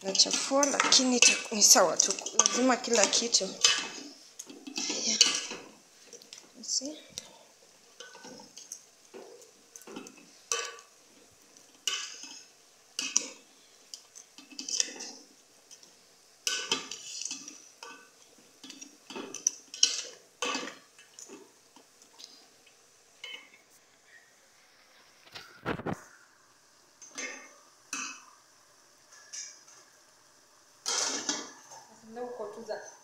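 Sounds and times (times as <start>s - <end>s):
spoon scraping a metal pot: 0.1s - 5.7s.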